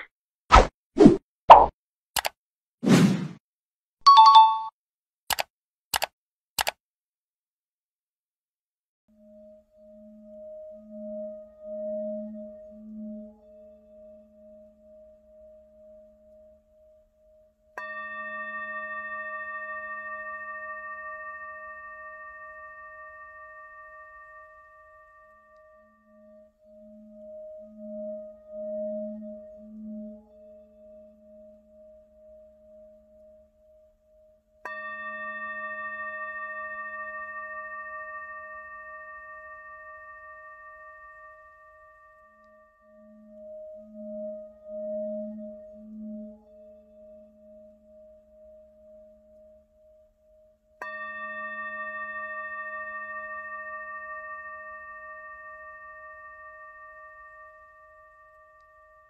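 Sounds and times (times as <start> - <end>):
bell ringing out: 4.1 - 4.7
steady wavering drone: 9.2 - 59.0.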